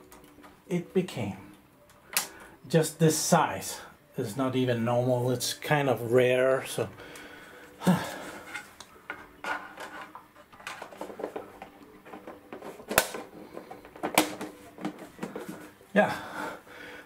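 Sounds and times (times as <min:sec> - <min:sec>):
plastic cover rubbing and scraping: 0:09.4 - 0:15.8
plastic cover clicking: 0:09.8 - 0:15.6.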